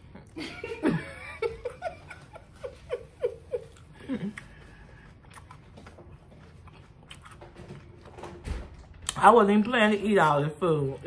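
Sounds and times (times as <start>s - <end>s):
woman chuckling: 0.2s - 4.6s
chewing food: 3.5s - 11.0s.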